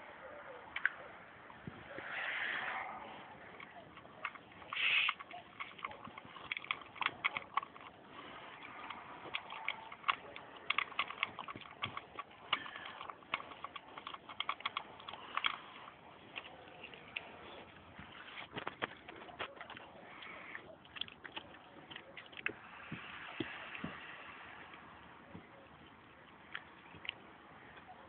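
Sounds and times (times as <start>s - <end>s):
puppy crunching food in metal bowl: 3.1s - 23.8s.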